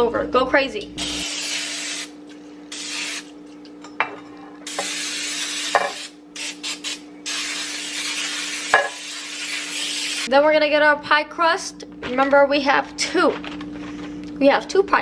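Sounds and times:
aerosol cooking spray hissing: 0:01.0 - 0:02.1, 0:02.7 - 0:03.3, 0:04.7 - 0:10.3.

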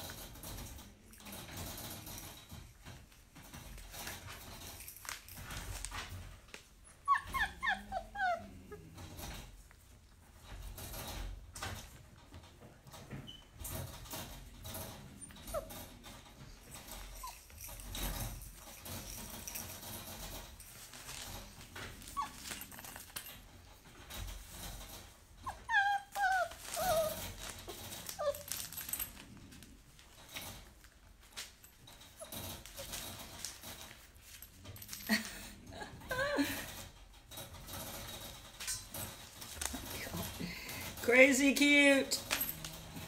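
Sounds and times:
rustling: 0:00.0 - 0:43.0
puppy whimpering: 0:06.9 - 0:09.3, 0:15.2 - 0:15.9, 0:16.8 - 0:17.5, 0:22.0 - 0:23.2, 0:25.4 - 0:29.2, 0:35.7 - 0:36.7.

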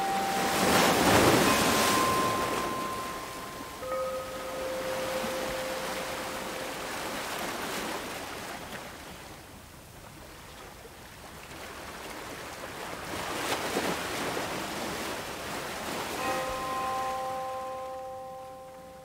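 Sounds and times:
held chime note: 0:00.0 - 0:07.7, 0:16.2 - 0:19.0
ocean waves washing in: 0:00.0 - 0:09.5, 0:11.4 - 0:19.0.

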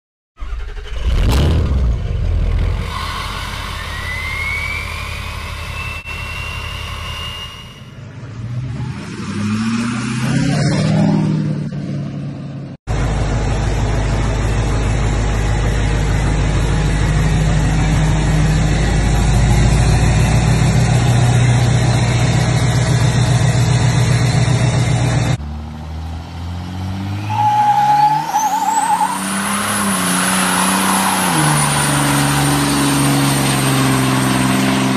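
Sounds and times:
diesel truck engine revving: 0:00.4 - 0:34.9
high whistle rising in pitch: 0:02.8 - 0:08.0.

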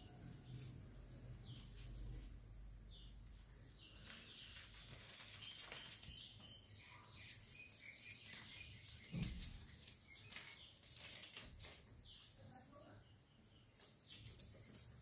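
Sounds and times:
newspaper crinkling: 0:03.4 - 0:12.2.

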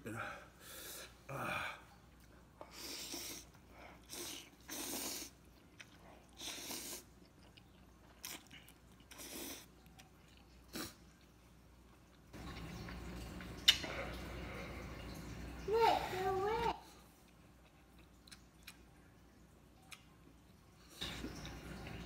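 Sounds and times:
man slurping noodles: 0:02.7 - 0:05.3
chewing: 0:03.4 - 0:14.2, 0:17.2 - 0:22.0.

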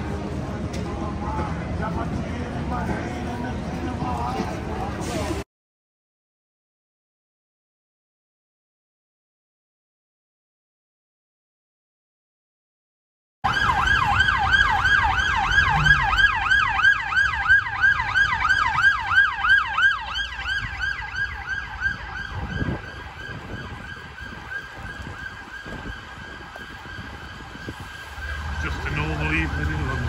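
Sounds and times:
low traffic rumble: 0:00.0 - 0:05.4, 0:13.4 - 0:30.0
siren in fast yelp mode: 0:13.4 - 0:30.0.

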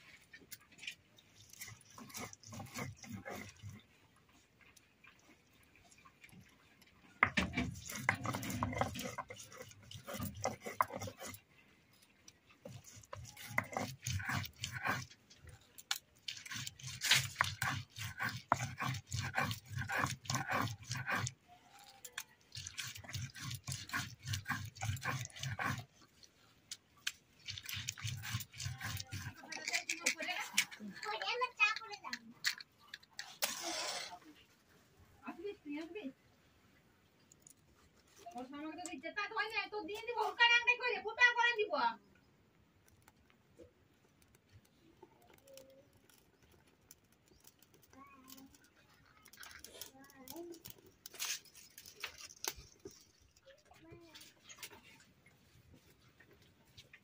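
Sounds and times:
stone grinding on stone slab: 0:01.4 - 0:03.8, 0:07.2 - 0:11.5, 0:12.6 - 0:26.3, 0:27.0 - 0:31.8, 0:33.2 - 0:34.2.

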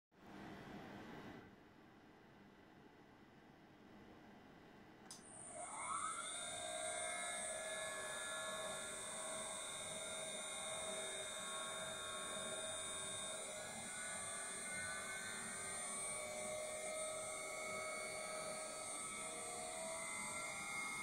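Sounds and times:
router spindle whine: 0:05.2 - 0:21.0.

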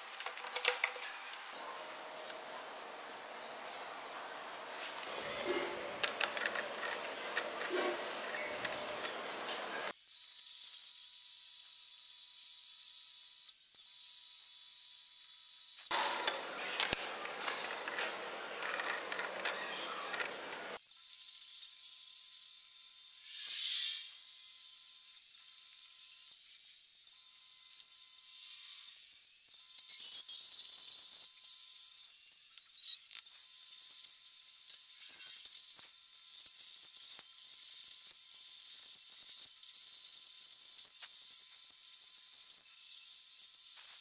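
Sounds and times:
metal lathe boring hiss: 0:23.1 - 0:24.2.

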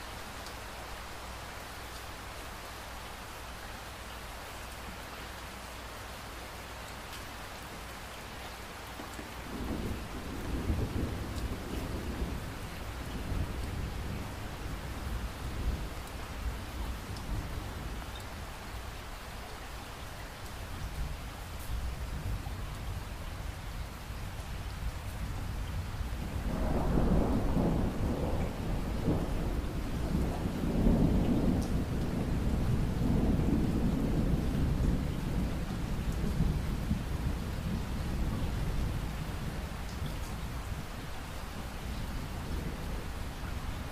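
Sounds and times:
steady rain hiss: 0:00.0 - 0:43.9
low rumble of thunder: 0:09.3 - 0:18.9, 0:20.7 - 0:43.9.

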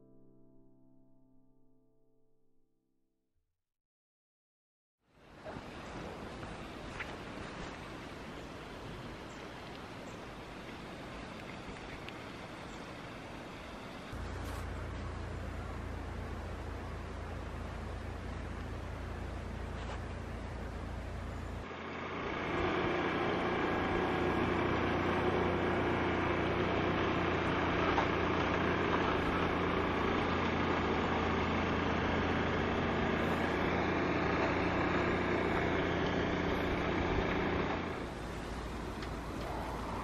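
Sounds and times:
engine running steadily: 0:05.2 - 0:40.0
low background hum: 0:05.4 - 0:21.8.

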